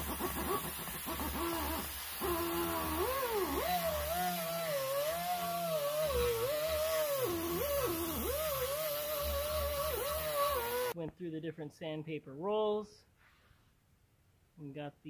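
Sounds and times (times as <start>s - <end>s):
air die grinder whining on metal: 0.0s - 11.0s.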